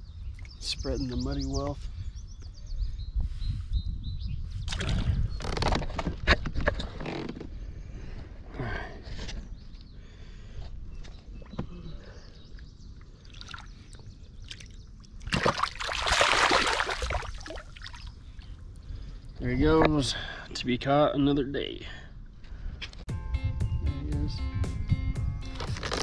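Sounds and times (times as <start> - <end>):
water sloshing: 13.0 - 18.6
fish splashing: 13.2 - 18.1.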